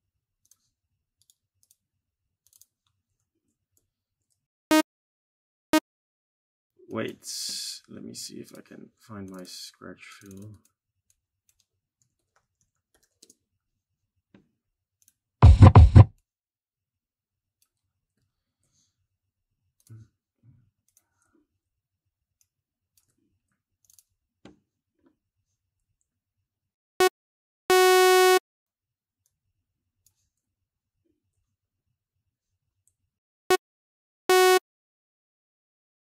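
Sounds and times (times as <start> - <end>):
bass-heavy hits: 15.4 - 16.1.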